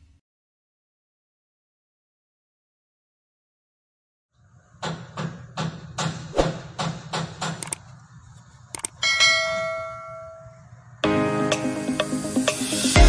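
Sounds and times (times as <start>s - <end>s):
mouse click: 8.7s - 8.9s
bell ding: 9.0s - 10.6s.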